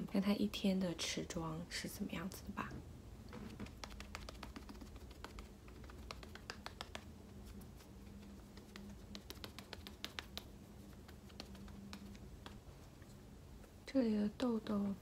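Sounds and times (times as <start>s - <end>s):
puff tapping against skin: 3.3s - 7.1s, 8.5s - 12.6s.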